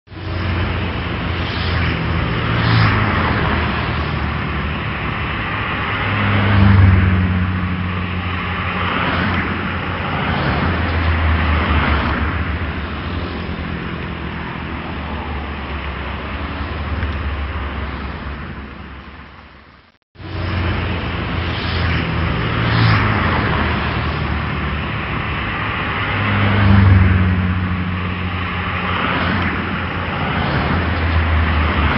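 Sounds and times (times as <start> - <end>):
cars passing: 0.1 - 31.9
low hum of engines: 0.1 - 31.9.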